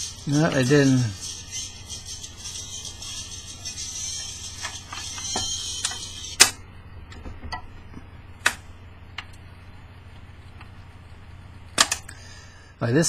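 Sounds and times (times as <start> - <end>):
record playback hiss: 0.0 - 13.0
steady low hum: 0.0 - 13.0.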